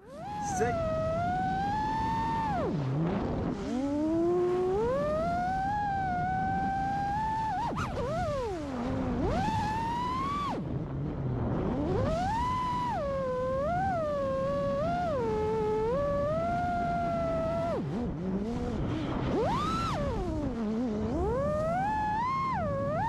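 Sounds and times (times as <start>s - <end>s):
drone motors whining: 0.0s - 10.7s, 11.6s - 23.0s.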